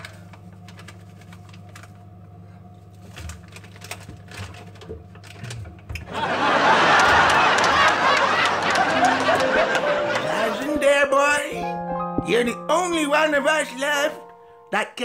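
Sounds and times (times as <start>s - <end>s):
plastic packet crinkling: 0.0s - 2.1s, 2.9s - 5.6s.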